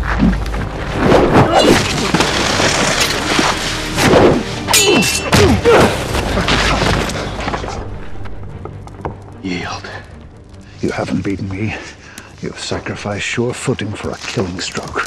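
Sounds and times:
deep booming film score: 0.0 - 12.2
ringing metallic sword clash: 4.7 - 5.4.

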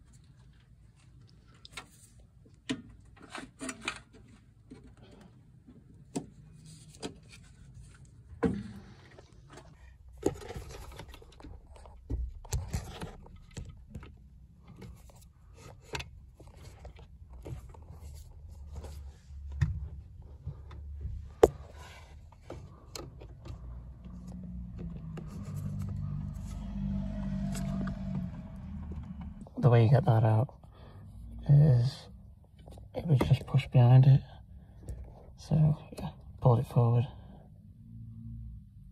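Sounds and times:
low hum: 23.5 - 29.8.

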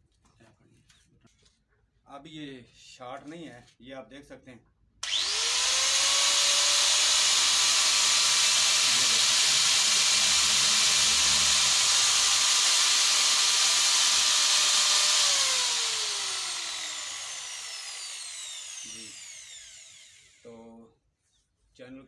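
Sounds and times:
angle grinder whining: 5.0 - 20.5.

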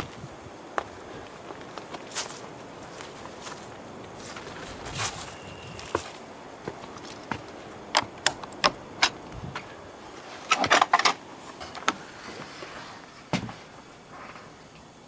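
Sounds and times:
footsteps on wood: 0.0 - 8.2.

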